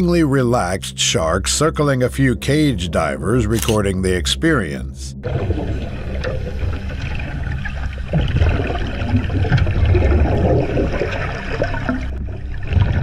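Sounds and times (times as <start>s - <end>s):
underwater bubbling and gurgling: 5.2s - 13.0s.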